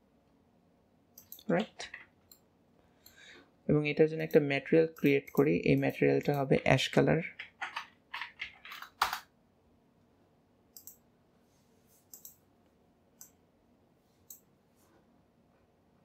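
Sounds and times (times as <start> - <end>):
computer mouse clicks: 1.2 - 3.2, 10.7 - 11.0, 12.1 - 12.4, 13.2 - 13.4, 14.2 - 14.5.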